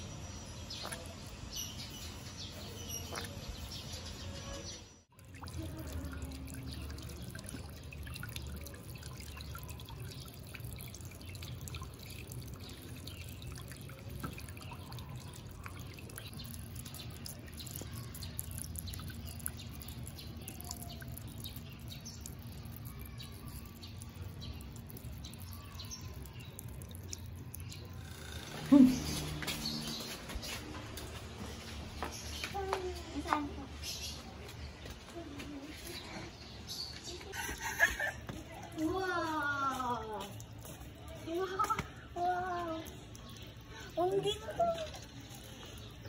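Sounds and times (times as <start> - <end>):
water drops splashing: 2.9 - 3.6, 5.1 - 31.2.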